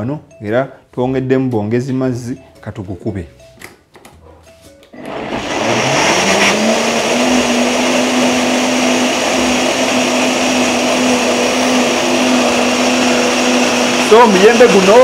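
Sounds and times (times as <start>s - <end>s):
blender motor whine: 5.0s - 15.0s.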